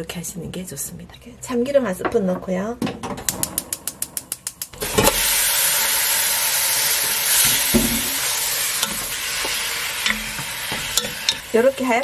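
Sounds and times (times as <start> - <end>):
sharp evenly spaced ticks: 3.3 - 4.8
meat sizzling in a pot: 4.3 - 12.0
wooden spoon stirring: 7.3 - 12.0
spoon knocking on pot: 7.5 - 11.5.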